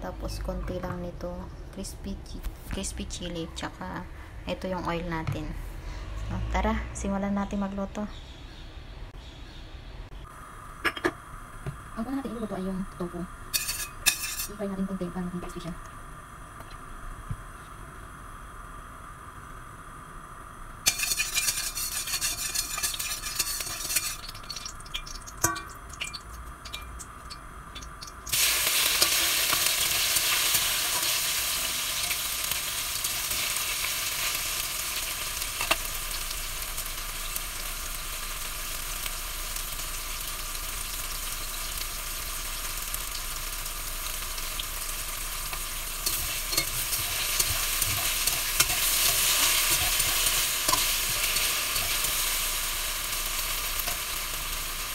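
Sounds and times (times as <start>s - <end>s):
spatula stirring in wok: 13.5s - 14.5s, 20.9s - 27.1s, 45.4s - 52.6s
tofu frying in hot oil: 20.8s - 54.9s.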